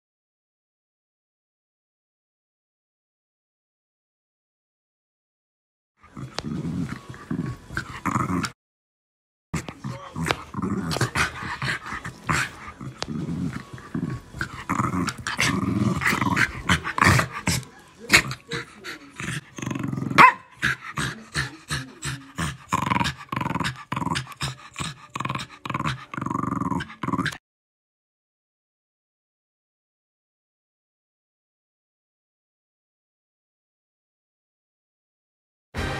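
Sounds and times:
dogs growling and snarling: 0:06.0 - 0:08.6, 0:09.6 - 0:27.4
dog yip: 0:20.2 - 0:20.5.

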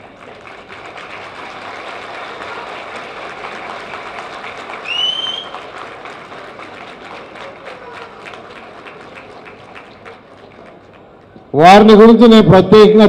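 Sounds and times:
crowd clapping: 0:00.0 - 0:11.5
rising whistle: 0:04.8 - 0:05.6.

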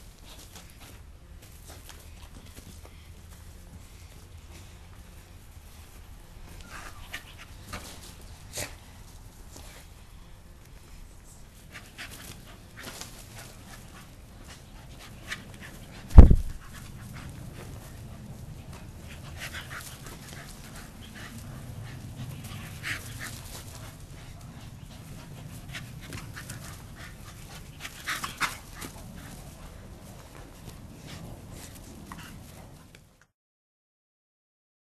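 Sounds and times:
dogs panting hard: 0:06.4 - 0:10.0, 0:11.5 - 0:33.0
short scuffling sounds: 0:11.7 - 0:18.0
loud thump: 0:16.1 - 0:16.6.

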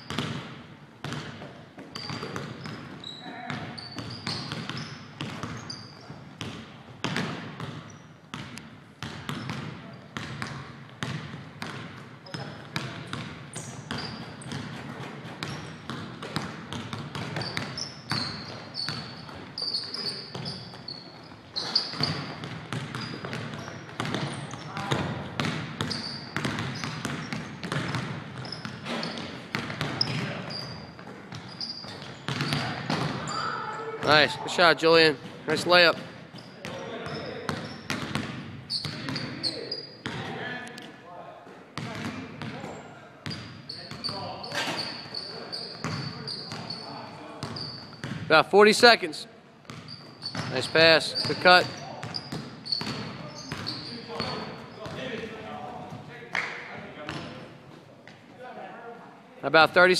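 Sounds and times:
sneakers squeaking on court: 0:00.0 - 0:40.4, 0:41.8 - 0:48.9, 0:49.6 - 0:58.3
basketball bouncing on hardwood floor: 0:00.1 - 0:05.6, 0:06.4 - 0:19.4, 0:21.9 - 0:30.3, 0:31.3 - 0:33.2, 0:37.5 - 0:39.2, 0:47.4 - 0:48.3, 0:52.0 - 0:53.7.

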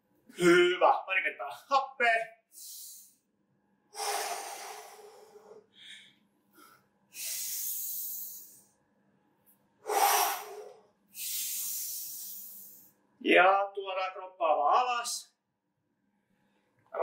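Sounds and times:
man breathing deeply: 0:03.9 - 0:08.7, 0:09.8 - 0:12.9.

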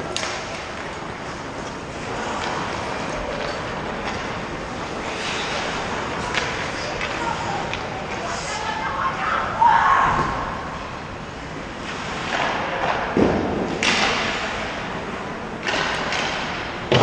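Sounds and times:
thuds and knocks echoing in rink: 0:00.0 - 0:08.0, 0:11.8 - 0:17.0
arena background noise: 0:00.0 - 0:17.0.

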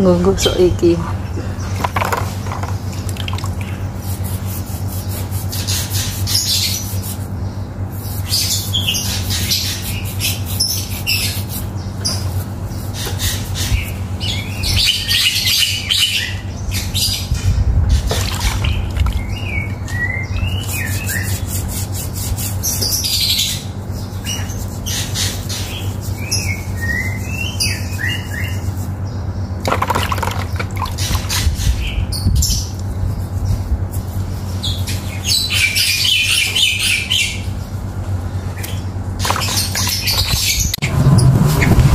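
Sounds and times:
steady low hum: 0:00.0 - 0:41.9
birds chirping and squawking: 0:00.4 - 0:41.9
fruit skin scrubbing bark: 0:02.9 - 0:07.3, 0:18.1 - 0:22.9.

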